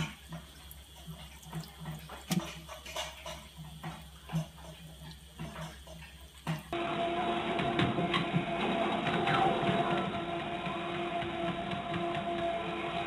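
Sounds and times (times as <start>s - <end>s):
cat lapping water: 0.0s - 6.8s
faucet running into sink: 0.0s - 6.8s.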